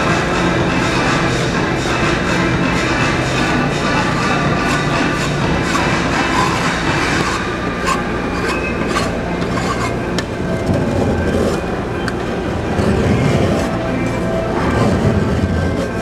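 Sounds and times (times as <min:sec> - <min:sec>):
low machine rumble: 0:00.0 - 0:16.0
metal spatula scraping steel pan: 0:03.8 - 0:10.0.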